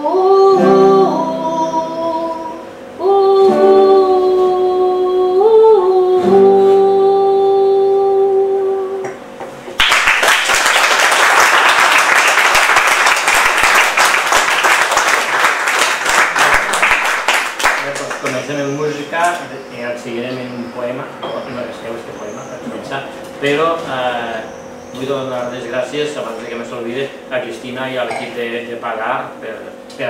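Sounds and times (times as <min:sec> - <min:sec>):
woman singing: 0:00.0 - 0:09.2
acoustic guitar: 0:00.0 - 0:09.6
audience applause: 0:09.8 - 0:18.5.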